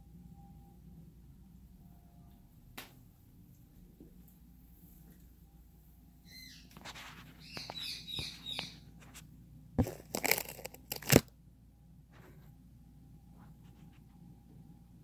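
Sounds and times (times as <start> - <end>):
parrot harsh screeches: 7.4 - 8.8
parrot whistled chirps: 7.4 - 8.8.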